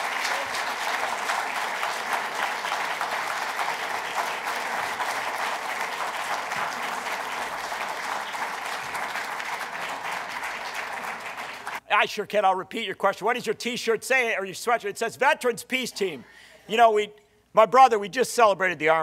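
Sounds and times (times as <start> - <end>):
audience applauding: 0.0 - 11.8.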